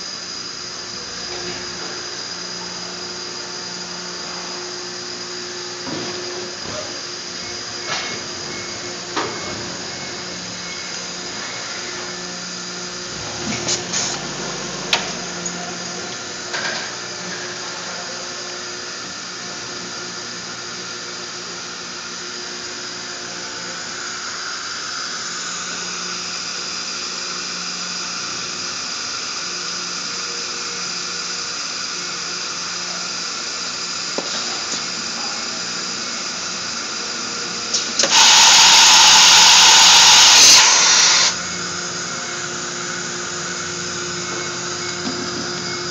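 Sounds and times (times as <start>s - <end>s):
drill spindle whine: 0.0s - 13.2s, 14.2s - 45.9s
loud steady hiss: 37.7s - 41.6s
machine hum: 37.7s - 45.9s.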